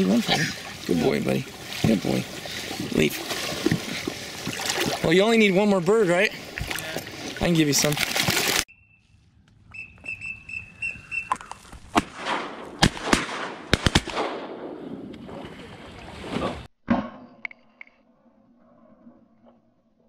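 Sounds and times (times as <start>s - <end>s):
high whistle peeps: 8.7s - 11.6s
shotgun blasts: 11.9s - 14.9s.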